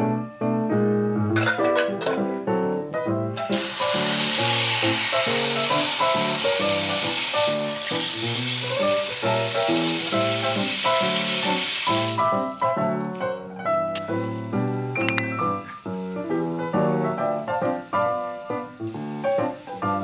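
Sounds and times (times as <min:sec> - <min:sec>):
background music: 0:00.0 - 0:20.0
tap water running into steel bowl: 0:03.4 - 0:12.3.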